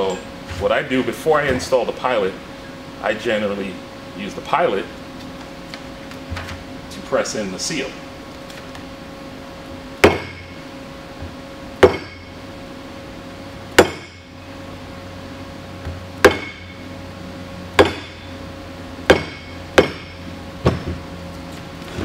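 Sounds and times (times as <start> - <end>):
mallet tapping metal: 11.8 - 12.2, 16.2 - 16.7, 17.8 - 18.2, 19.1 - 20.2.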